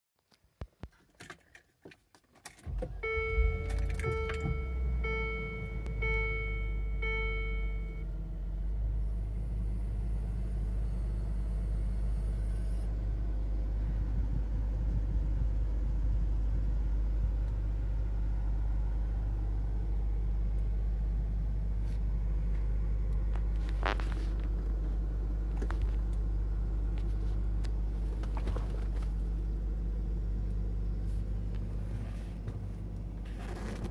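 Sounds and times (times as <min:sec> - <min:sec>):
car engine starting and idling: 0:02.4 - 0:33.9
dashboard warning chime beeping: 0:02.9 - 0:08.0.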